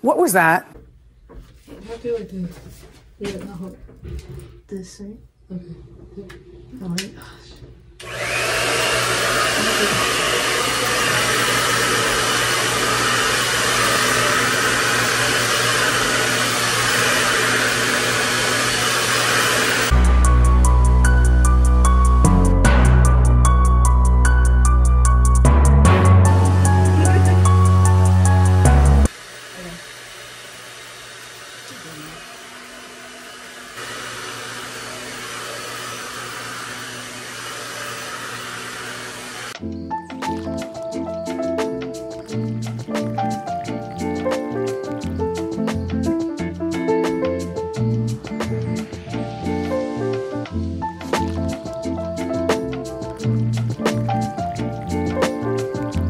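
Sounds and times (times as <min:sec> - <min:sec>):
blow dryer running: 0:08.0 - 0:39.6.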